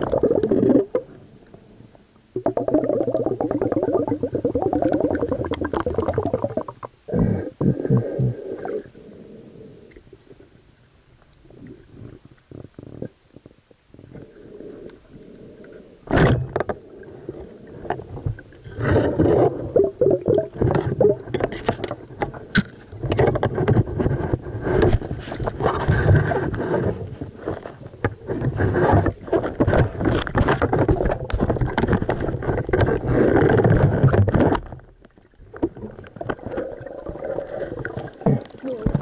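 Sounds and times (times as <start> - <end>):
underwater knocks and scrapes: 16.1 - 39.0.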